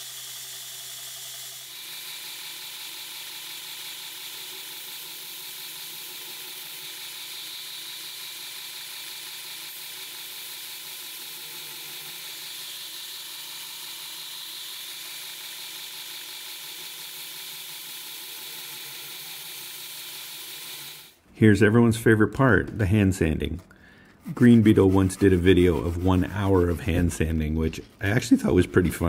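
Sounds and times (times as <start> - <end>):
belt grinder grinding hiss: 0.0 - 21.2.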